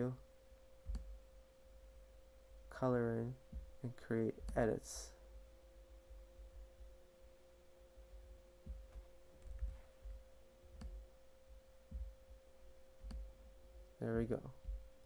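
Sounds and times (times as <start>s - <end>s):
faint high hum: 0.0s - 15.0s
soft low thumps: 0.8s - 1.3s, 3.4s - 7.1s, 7.9s - 15.0s.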